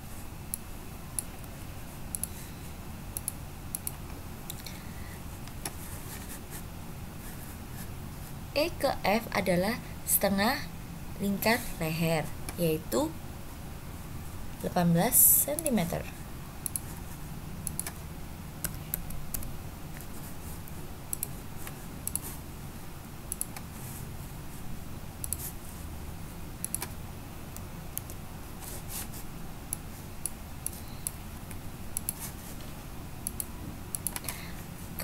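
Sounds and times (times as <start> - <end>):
low steady hum: 0.0 - 35.0
mouse and keyboard clicks: 16.6 - 16.9.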